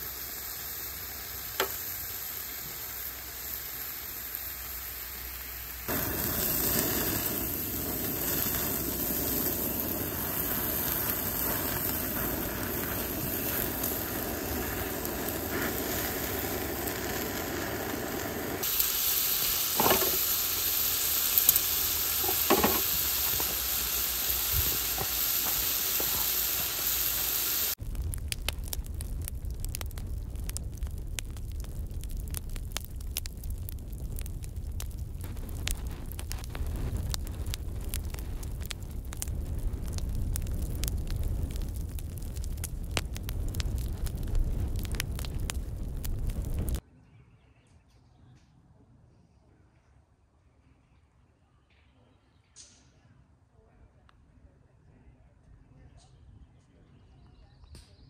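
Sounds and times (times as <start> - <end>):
meat sizzling on a grill plate: 0.0 - 27.8.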